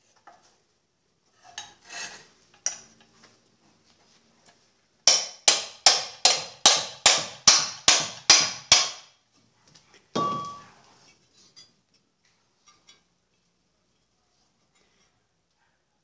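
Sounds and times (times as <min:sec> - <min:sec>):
metallic clank with ring: 0:10.2 - 0:10.7.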